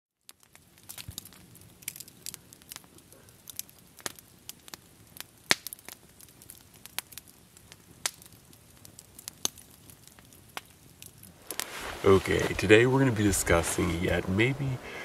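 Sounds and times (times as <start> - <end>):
campfire crackling and popping: 0.1 - 15.0
faint hiss: 10.3 - 15.0.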